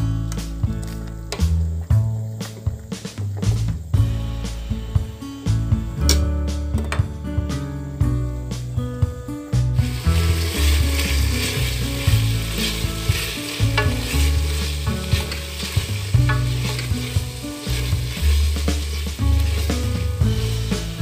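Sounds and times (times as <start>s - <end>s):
background music with bass line: 0.0s - 21.0s
onions sizzling in oil: 9.8s - 21.0s.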